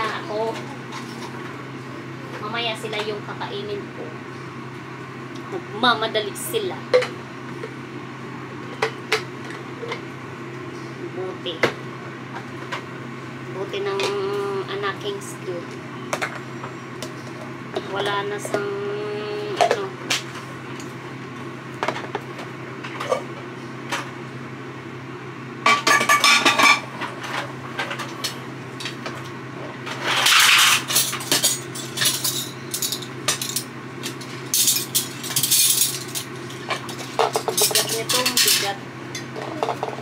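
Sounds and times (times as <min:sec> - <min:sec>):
steady low hum: 0:00.0 - 0:40.0
metal utensils clinking: 0:30.1 - 0:38.8.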